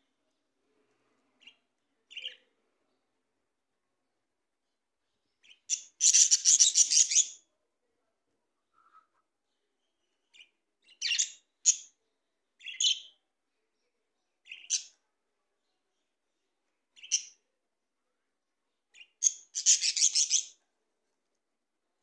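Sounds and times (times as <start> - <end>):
budgerigars chirping: 5.4 - 7.4, 19.0 - 20.5.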